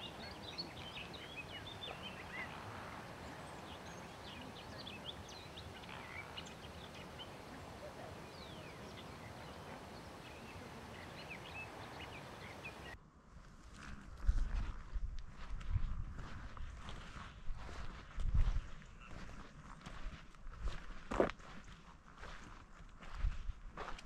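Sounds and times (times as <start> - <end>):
birds chirping and calling: 0.0 - 13.0
steady outdoor hiss: 0.0 - 13.7.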